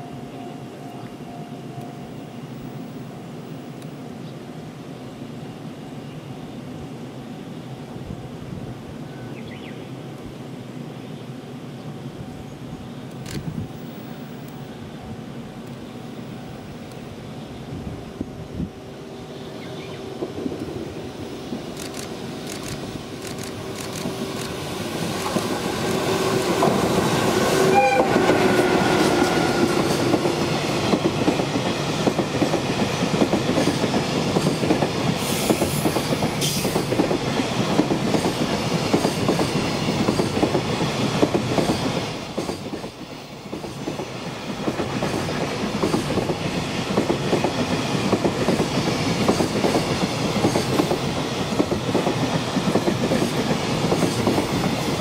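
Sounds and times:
electric locomotive hum: 0:00.0 - 0:55.0
train wheels clattering over rail joints: 0:29.8 - 0:55.0.

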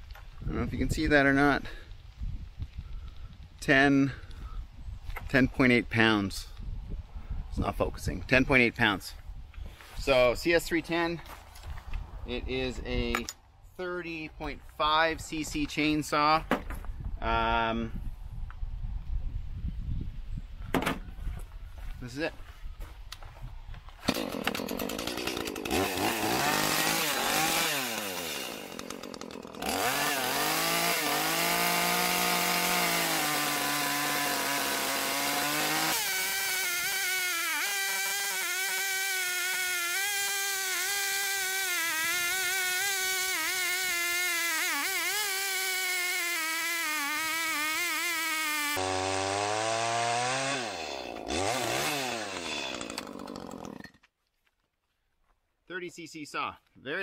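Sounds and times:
chainsaw cutting through log: 0:24.0 - 0:54.0.

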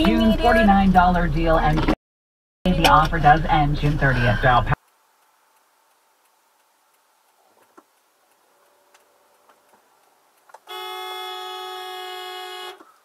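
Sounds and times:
small clicks: 0:04.8 - 0:10.8
car horn blast: 0:10.7 - 0:13.0.

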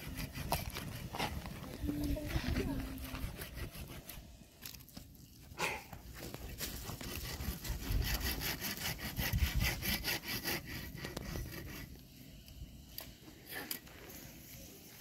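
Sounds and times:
dry twigs rustling and crackling: 0:04.5 - 0:07.7.

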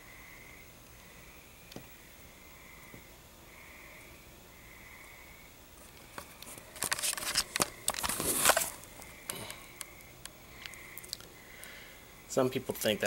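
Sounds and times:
camera handling rustling and clicks: 0:06.0 - 0:08.8.

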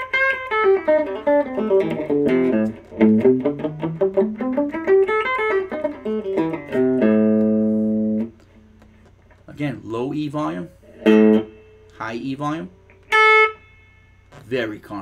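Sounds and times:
electric guitar single-note runs: 0:00.0 - 0:08.3.

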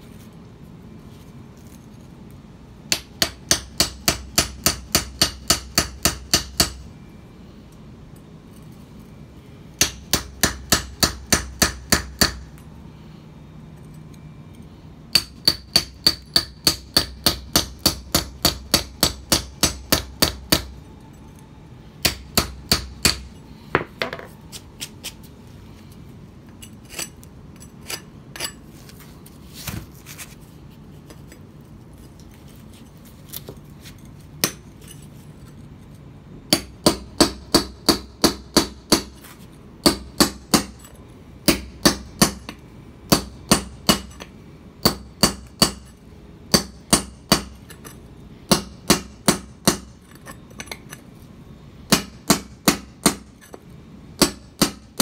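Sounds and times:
hammer striking steel chisel: 0:02.9 - 0:06.8, 0:09.8 - 0:12.5, 0:15.1 - 0:20.7, 0:22.0 - 0:24.2, 0:46.5 - 0:50.8, 0:54.2 - 0:55.0.

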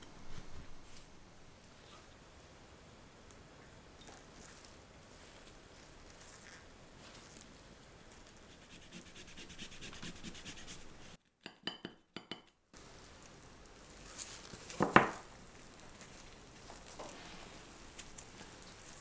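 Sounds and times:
gloved hands rustling on cake: 0:04.1 - 0:11.2, 0:12.8 - 0:19.0.

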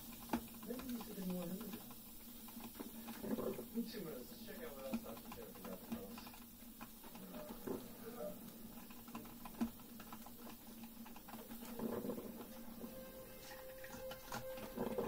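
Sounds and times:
coffeemaker sputtering pops: 0:00.0 - 0:15.0
low steady hum: 0:11.0 - 0:15.0.

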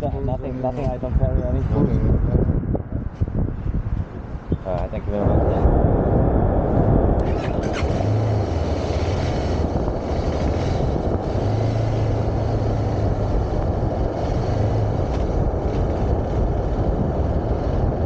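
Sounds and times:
wind rumble on microphone: 0:00.0 - 0:18.0
motorcycle engine pulling away: 0:07.2 - 0:18.0.

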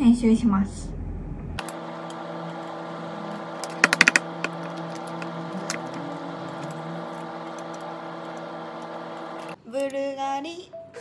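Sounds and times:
steady hum: 0:01.0 - 0:09.6
laptop keyboard typing: 0:03.3 - 0:06.0.

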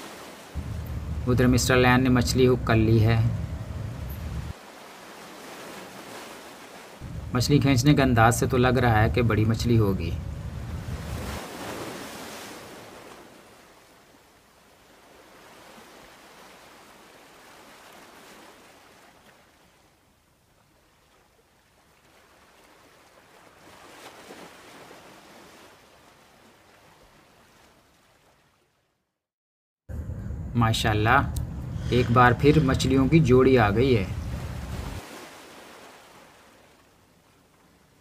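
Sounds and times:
waves: 0:00.0 - 0:29.0, 0:30.6 - 0:38.0
wind: 0:00.0 - 0:29.1, 0:29.9 - 0:38.0.

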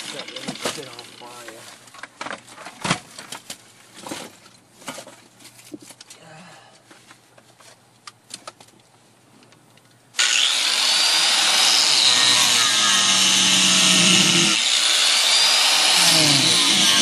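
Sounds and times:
hand grinder cutting sheet steel: 0:10.2 - 0:17.0.

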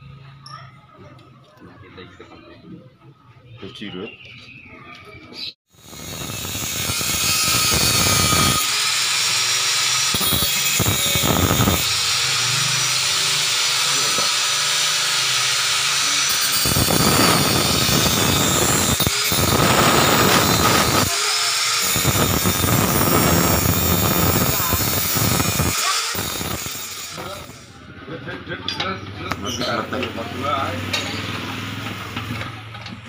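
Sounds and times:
power tool hiss and whine: 0:05.7 - 0:27.7.

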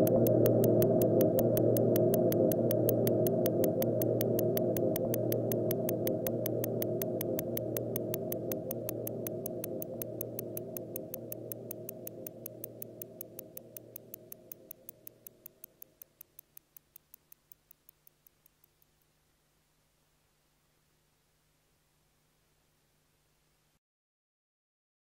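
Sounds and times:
train of sharp electronic clicks: 0:00.0 - 0:19.2.

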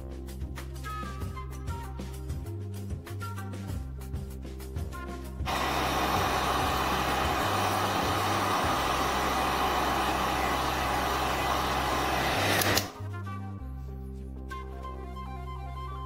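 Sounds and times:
hot-air blower rushing: 0:05.5 - 0:13.0.

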